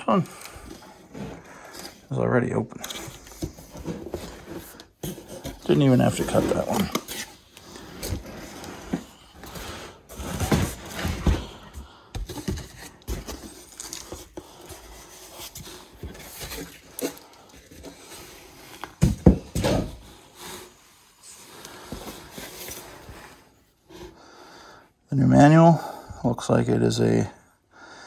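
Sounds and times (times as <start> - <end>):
cardboard rubbing and scraping: 3.2 - 11.4.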